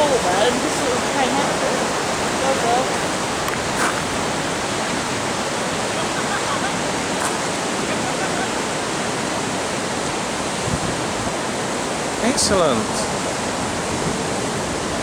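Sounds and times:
white water rushing: 0.0 - 15.0.

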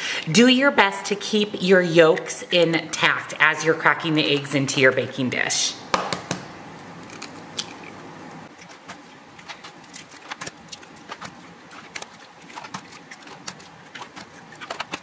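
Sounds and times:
eggshells cracking: 6.8 - 8.0.

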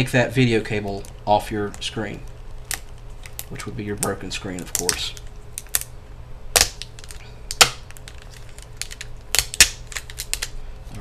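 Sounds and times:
low steady hum: 0.0 - 11.0
tape peeling: 0.8 - 10.6.

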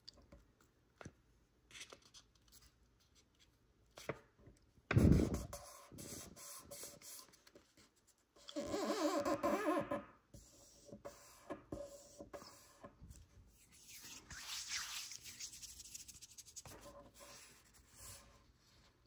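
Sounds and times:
scraping rub on paper: 13.6 - 18.5.

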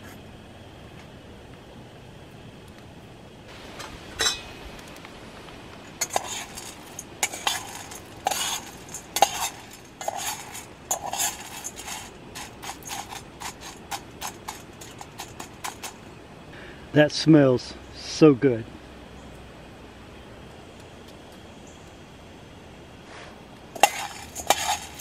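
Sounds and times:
steady hiss: 0.0 - 25.0
coffee beans rattling in steel pan: 6.0 - 16.0, 23.8 - 25.0.

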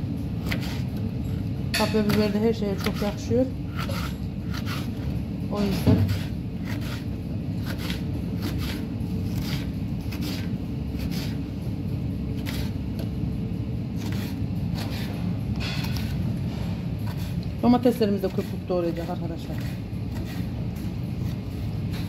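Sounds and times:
knife chopping on wooden board: 0.4 - 0.9, 1.8 - 5.0, 5.6 - 11.4, 12.4 - 12.8, 14.0 - 16.2, 18.3 - 20.5.

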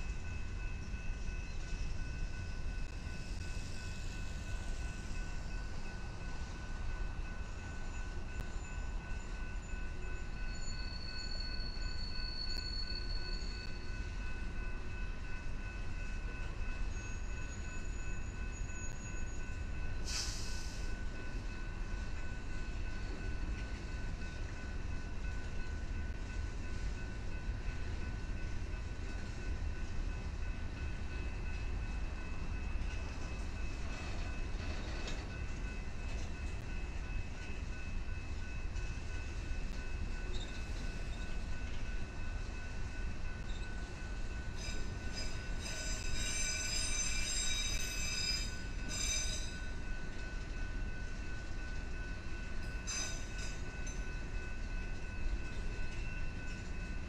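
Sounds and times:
train wheels rumbling on rails: 0.0 - 57.0
short hiss: 20.1 - 20.8.

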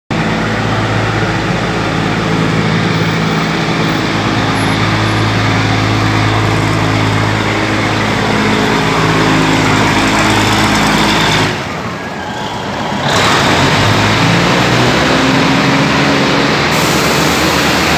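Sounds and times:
diesel engine drone: 0.1 - 17.9
train wheels rumbling on rails: 0.1 - 17.9.

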